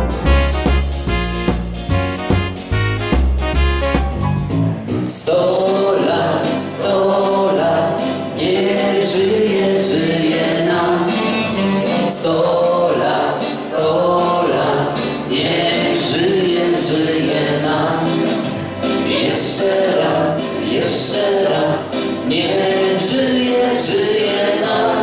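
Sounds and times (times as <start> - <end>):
group singing in chorus: 5.1 - 25.0.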